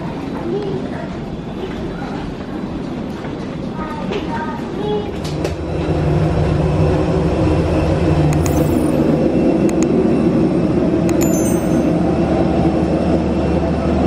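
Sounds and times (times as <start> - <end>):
sharp clicks: 8.4 - 9.0, 9.7 - 9.9, 11.1 - 11.9
short bell-like ding: 11.1 - 12.0.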